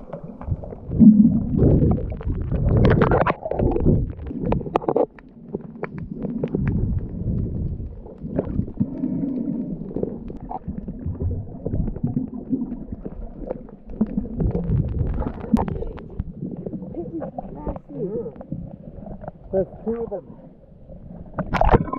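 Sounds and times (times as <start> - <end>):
underwater rumbling and sloshing: 0.0 - 21.9.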